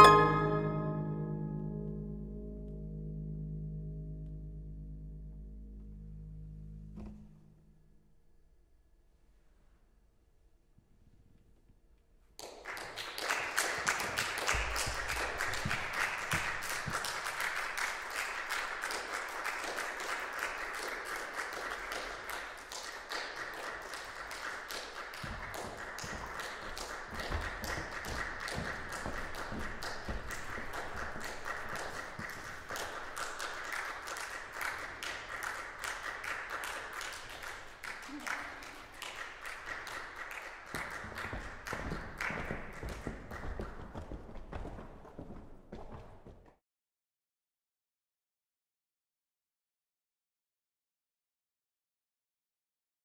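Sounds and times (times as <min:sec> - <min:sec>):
audience applauding: 0:12.4 - 0:44.0.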